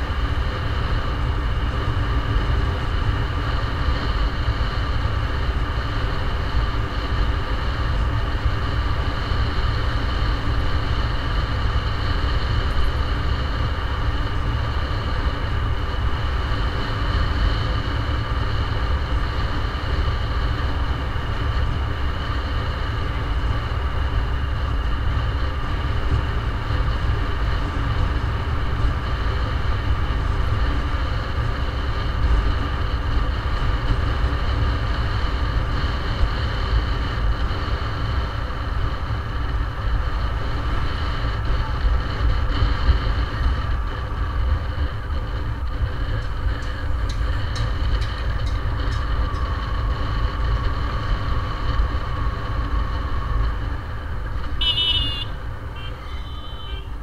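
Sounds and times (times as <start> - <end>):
faint steady whine: 0.0 - 57.0
road noise: 0.0 - 57.0
wind rumble: 0.0 - 57.0.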